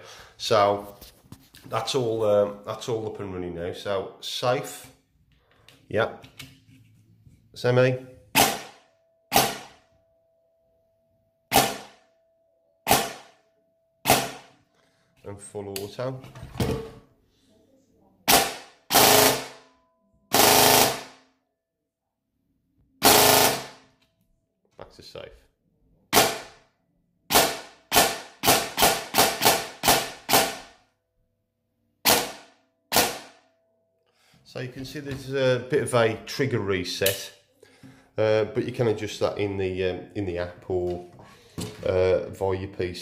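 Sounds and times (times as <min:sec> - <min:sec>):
airsoft gun shots cracking: 0:08.4 - 0:09.8, 0:11.5 - 0:12.0, 0:12.9 - 0:13.4, 0:14.0 - 0:14.5, 0:32.0 - 0:33.4.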